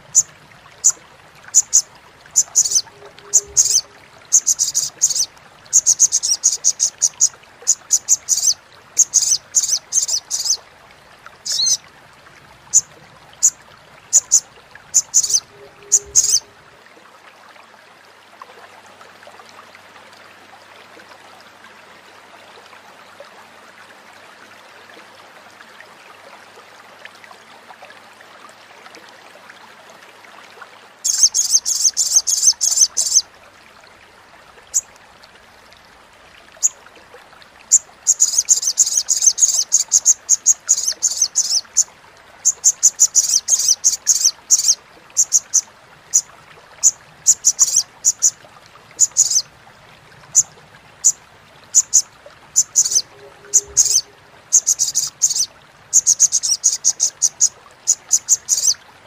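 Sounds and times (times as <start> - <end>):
faint steady hiss: 0.0 - 59.0
bird chattering: 2.4 - 10.6, 11.4 - 11.8, 15.0 - 16.4, 38.1 - 41.6, 42.5 - 45.6, 47.3 - 48.3, 49.0 - 49.4, 52.6 - 58.8.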